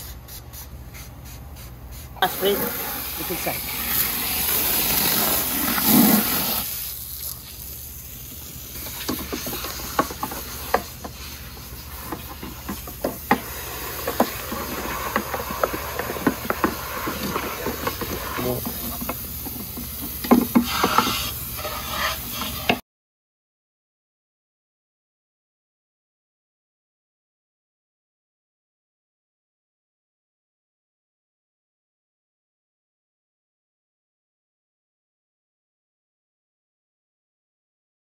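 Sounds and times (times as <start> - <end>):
water spraying from hose nozzle: 0.3 - 22.8.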